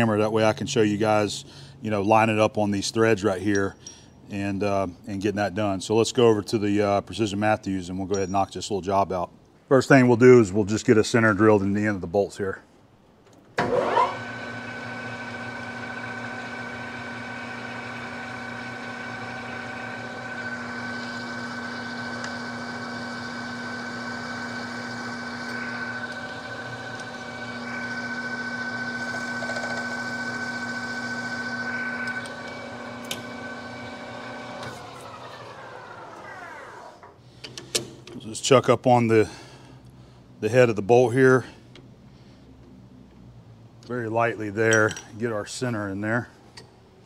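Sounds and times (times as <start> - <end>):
metal lathe spindle whining: 13.6 - 37.2.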